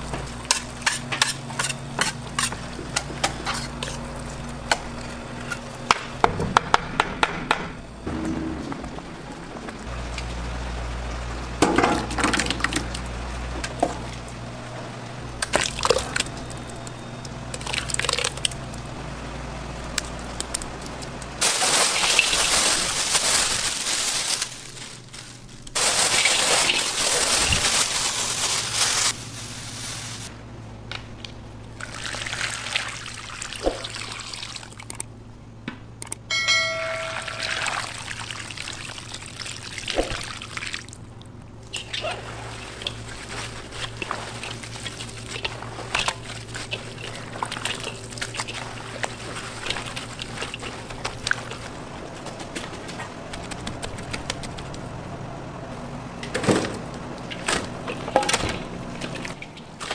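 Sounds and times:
utensils clinking on metal: 36.3s - 38.1s.

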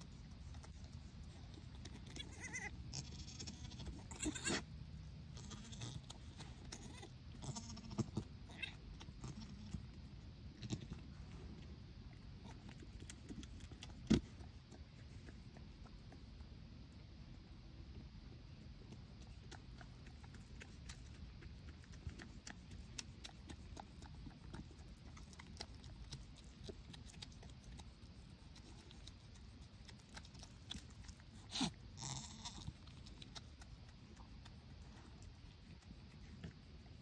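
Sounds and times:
faint clicking and rustling: 0.0s - 4.7s, 5.4s - 17.1s, 17.9s - 37.0s
goat bleating: 2.1s - 4.7s, 5.3s - 6.1s, 6.8s - 9.8s, 31.5s - 32.8s.

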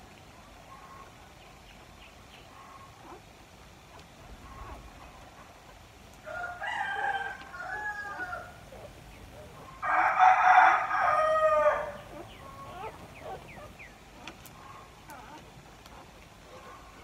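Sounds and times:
rooster crowing: 6.2s - 8.6s, 9.8s - 12.9s.

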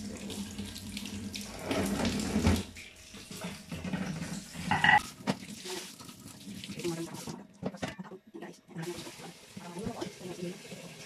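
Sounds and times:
tap water splashing into sink: 0.0s - 4.4s, 5.0s - 7.8s.

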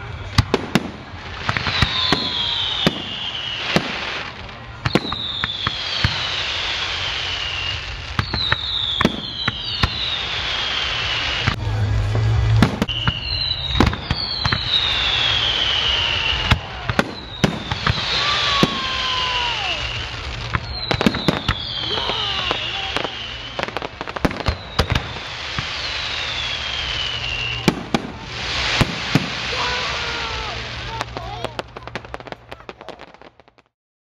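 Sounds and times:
fireworks bangs and crackling pops: 0.0s - 33.8s
high whistles sliding down: 5.0s - 11.5s, 12.1s - 31.1s.

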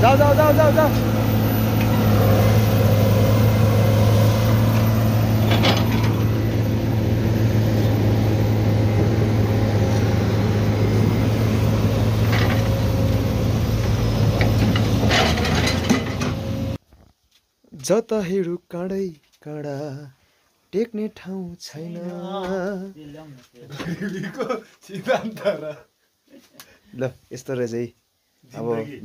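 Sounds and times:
diesel engines droning: 0.0s - 16.8s.

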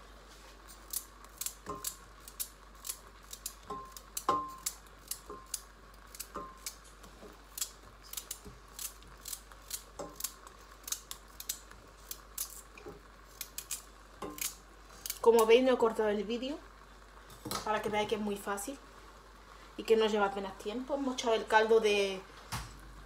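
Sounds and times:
slices knocking in metal pot: 3.6s - 5.6s.

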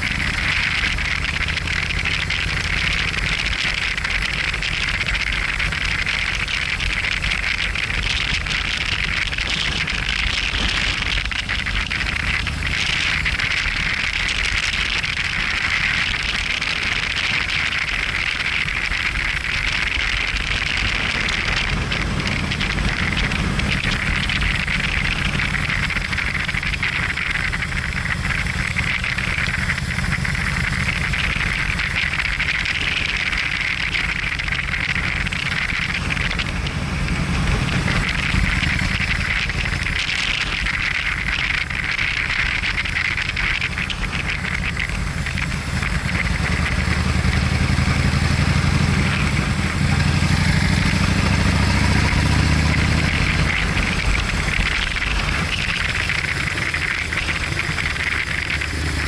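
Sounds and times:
motorcycle engine running: 0.0s - 59.0s
wind noise on microphone: 0.0s - 59.0s.

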